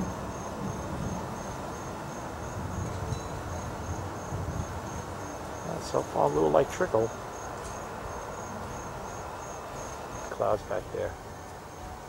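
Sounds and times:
insect chirping: 0:00.0 - 0:12.0.

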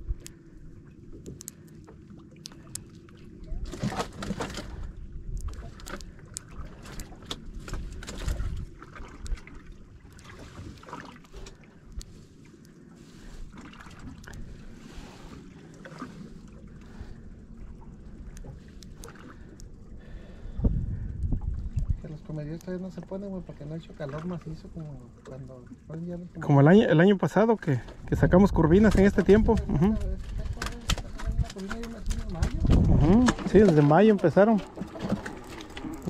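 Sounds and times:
water rumbling: 0:00.0 - 0:36.0
wind on microphone: 0:07.4 - 0:09.6, 0:20.0 - 0:22.4, 0:28.0 - 0:36.0
water rush: 0:30.6 - 0:36.0.

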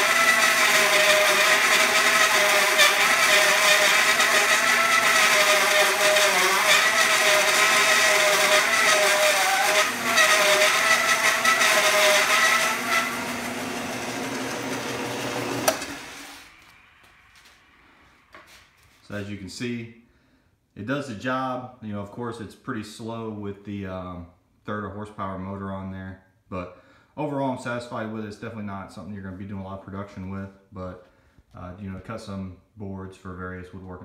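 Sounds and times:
bandsaw whining through wood: 0:00.0 - 0:16.8.

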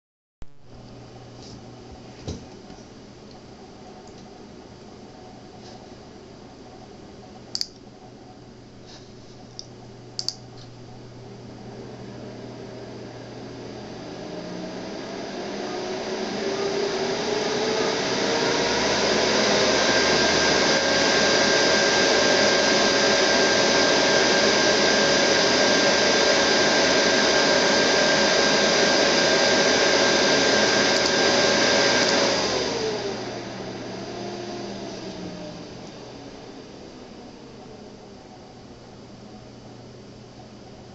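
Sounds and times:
computer cooling fans whining: 0:00.6 - 0:40.9.

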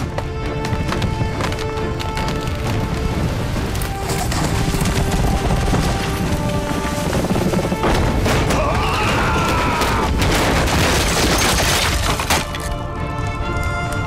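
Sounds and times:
dramatic music: 0:00.0 - 0:14.0
bangs and crashes: 0:03.6 - 0:12.8.

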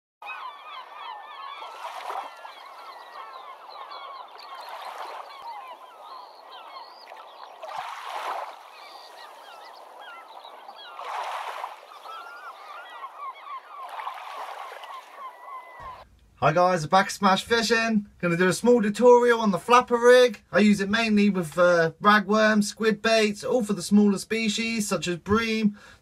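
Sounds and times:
birds honking and chirping: 0:00.2 - 0:16.8.

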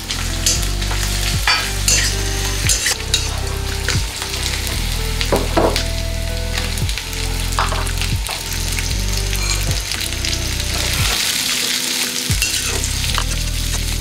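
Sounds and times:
food sizzling in hot oil: 0:00.0 - 0:14.0
steel spatula scraping wok: 0:00.0 - 0:14.0.

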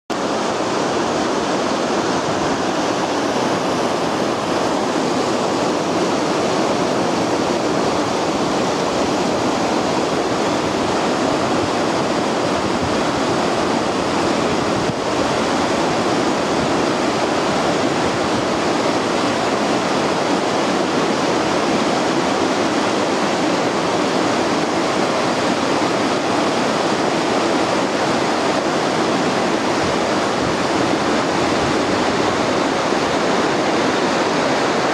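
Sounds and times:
river rushing over rocks: 0:00.1 - 0:34.9.

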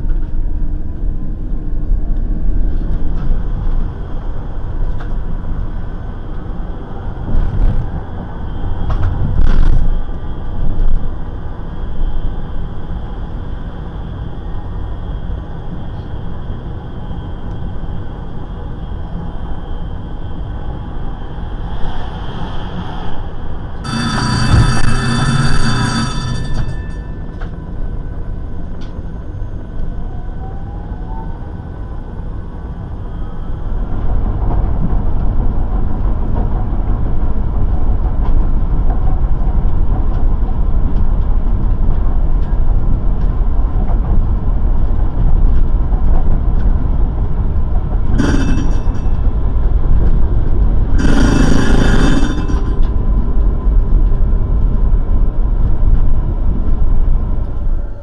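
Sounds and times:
tram rumbling on rails: 0:00.0 - 0:58.0
ringing warning signal: 0:23.8 - 0:29.7, 0:48.2 - 0:49.5, 0:51.0 - 0:53.0.

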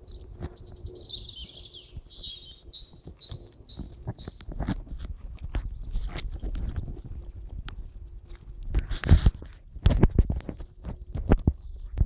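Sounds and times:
songbird singing: 0:00.0 - 0:04.5.

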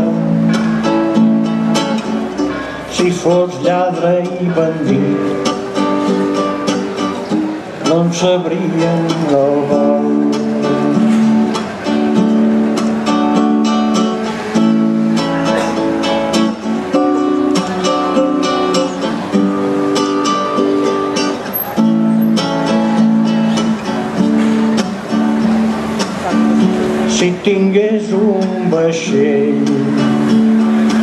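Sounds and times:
acoustic guitar playing: 0:00.0 - 0:31.0.

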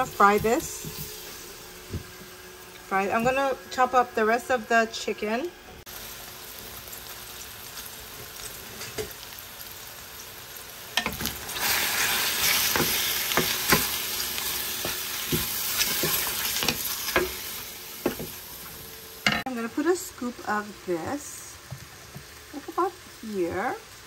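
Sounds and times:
chicken sizzling in oil: 0:00.0 - 0:05.2, 0:05.8 - 0:24.0
wooden spoon knocking and scraping pan: 0:12.6 - 0:14.0, 0:14.8 - 0:17.4, 0:18.0 - 0:18.4.

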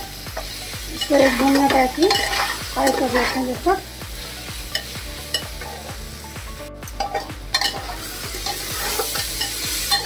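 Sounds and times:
food sizzling: 0:00.0 - 0:10.0
spatula clinking on pot: 0:01.0 - 0:03.4, 0:07.0 - 0:10.0
metal spatula scraping a pot: 0:01.0 - 0:03.6, 0:04.7 - 0:05.9, 0:07.0 - 0:10.0.

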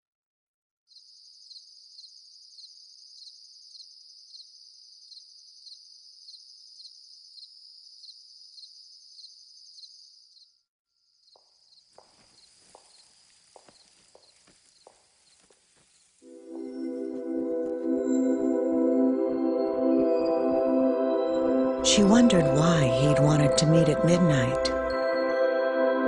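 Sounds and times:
crickets chirping: 0:00.9 - 0:17.5
irregular knocks: 0:11.4 - 0:13.0.

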